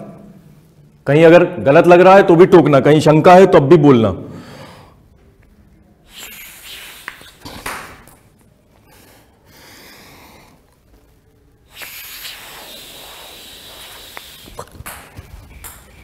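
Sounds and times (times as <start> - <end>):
breath blown through a straw: 6.0 - 7.4, 11.6 - 14.8.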